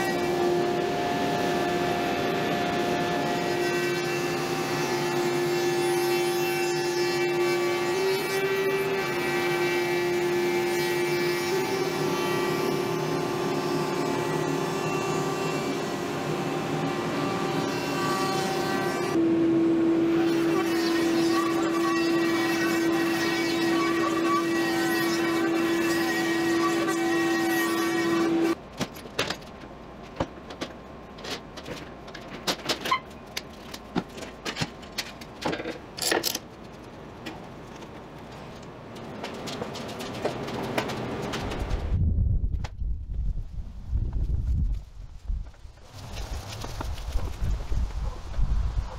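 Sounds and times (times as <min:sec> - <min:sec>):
power tool high hum: 0:00.0 - 0:28.6
tools and wood clicking and knocking: 0:28.7 - 0:41.6.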